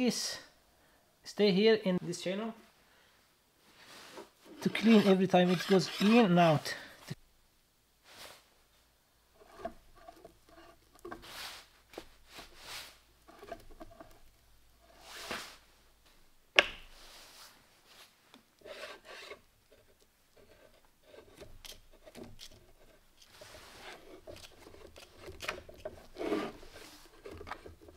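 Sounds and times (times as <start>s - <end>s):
metal scraping on wood: 3.9s - 6.9s, 9.4s - 11.7s, 12.3s - 15.5s, 18.6s - 27.9s.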